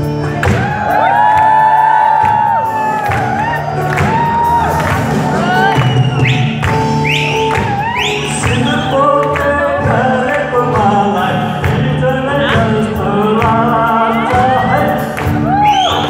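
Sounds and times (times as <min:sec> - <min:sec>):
drums: 0:00.0 - 0:16.0
live band music: 0:00.0 - 0:16.0
man singing into a microphone: 0:08.0 - 0:16.0.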